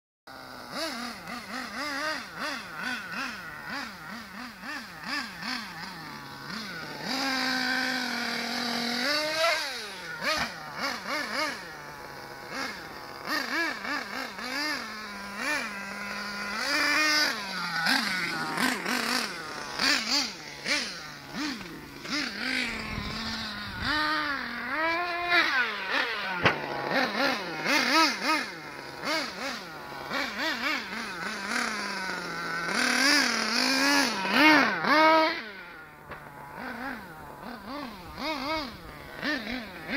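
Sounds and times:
small nitro engine revving: 0.3s - 39.9s.

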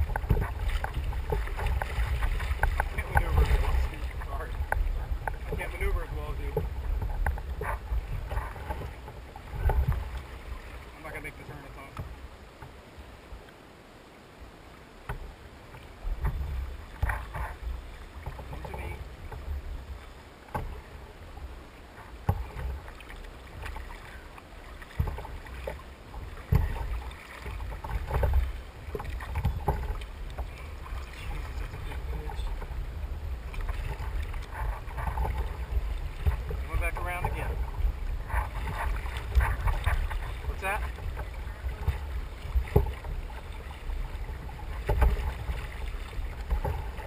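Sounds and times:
wind buffeting microphone: 0.0s - 10.7s
water splashing against kayak hull: 0.0s - 47.0s.

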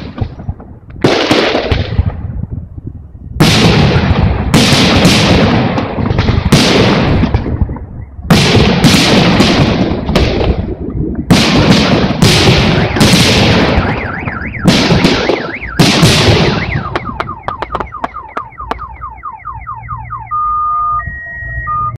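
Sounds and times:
firework bangs and crackling: 0.0s - 19.0s
car alarm warbling: 7.4s - 8.3s, 13.7s - 22.0s.

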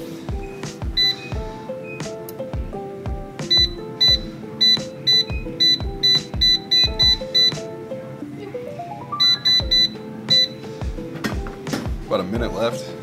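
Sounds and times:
background music: 0.0s - 13.0s
short high beeps: 1.0s - 1.3s, 3.5s - 7.6s, 9.2s - 10.6s.

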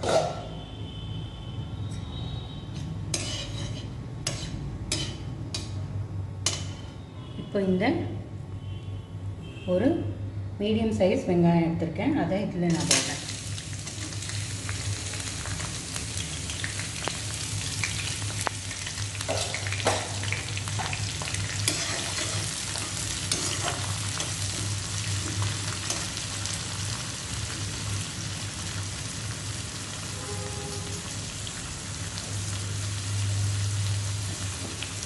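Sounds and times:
onion sizzling in oil: 3.1s - 5.7s, 12.7s - 35.0s.

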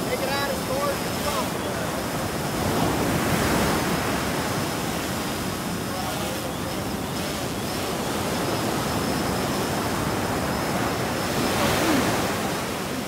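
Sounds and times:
ocean surf breaking on beach: 0.0s - 13.0s.

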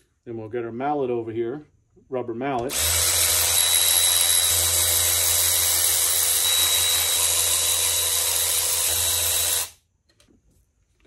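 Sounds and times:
electric ratchet spinning with whine: 2.7s - 9.8s.

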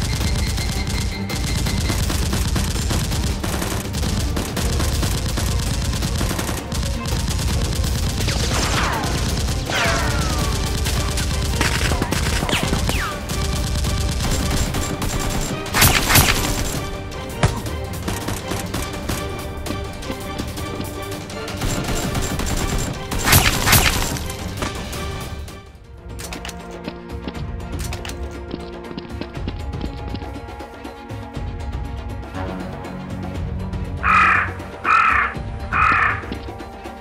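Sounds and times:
rapid gunfire: 0.0s - 25.4s
background music with low beat: 0.0s - 37.0s
loud sharp cracks: 21.7s - 24.8s.

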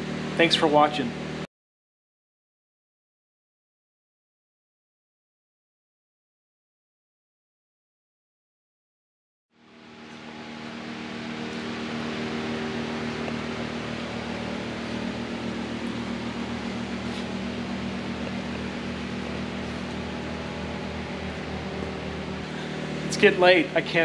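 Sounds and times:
mechanical hum with hiss: 0.0s - 1.5s, 9.6s - 24.0s.

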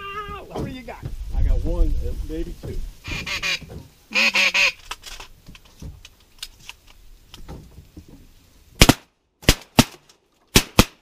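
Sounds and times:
ducks quacking: 3.0s - 4.8s
shotgun shots: 8.8s - 11.0s.

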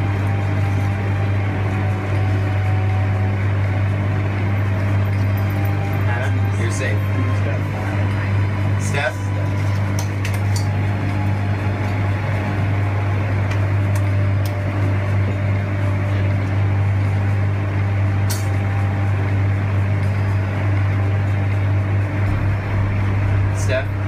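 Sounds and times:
low hum with overtones: 0.0s - 24.0s.

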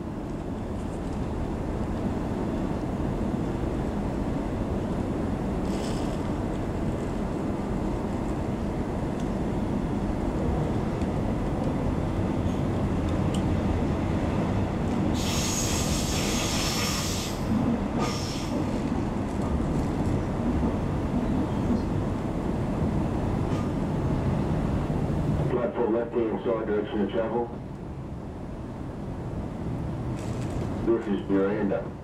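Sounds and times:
train wheels rumbling on track: 0.0s - 32.0s
passing train hiss and squeal: 15.1s - 18.8s.

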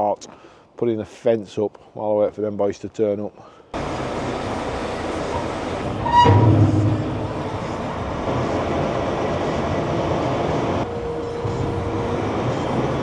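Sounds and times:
steady whine: 3.8s - 10.0s
loading machine engine running: 3.8s - 13.0s.

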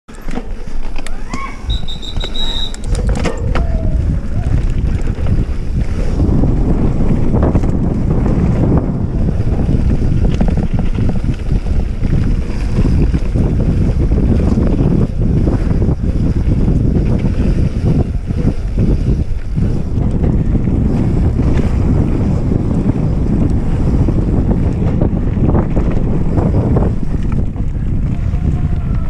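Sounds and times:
bike clicks and knocks: 0.1s - 29.0s
wind buffeting microphone: 0.2s - 29.0s
high beeps: 1.6s - 2.9s.

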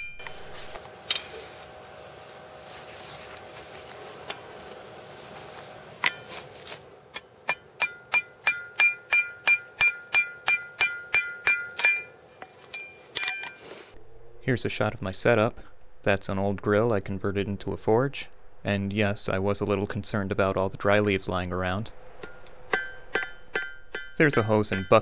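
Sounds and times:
hammer striking anvil: 7.2s - 13.6s, 22.2s - 25.0s.

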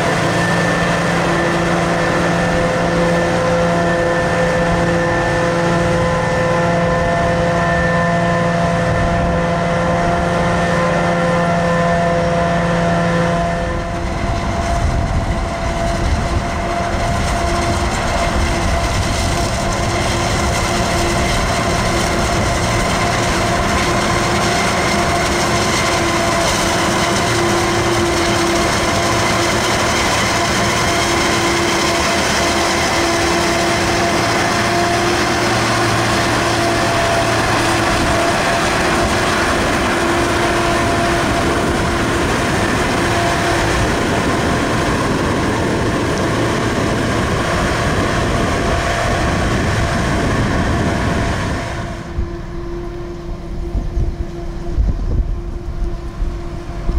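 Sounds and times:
machine whine: 0.0s - 56.9s
forage harvester chopping: 17.5s - 43.5s.

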